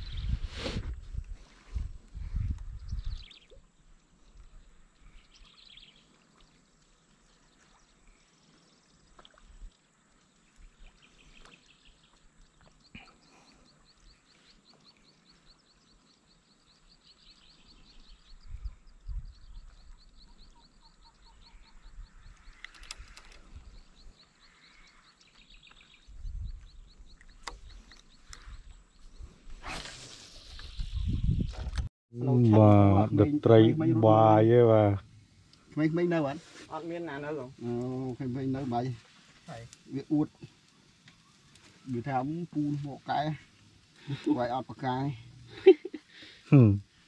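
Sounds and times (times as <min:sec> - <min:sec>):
wind rumbling on microphone: 0:00.0 - 0:03.5, 0:18.0 - 0:20.5, 0:25.7 - 0:31.9
birds chirping: 0:02.6 - 0:46.9.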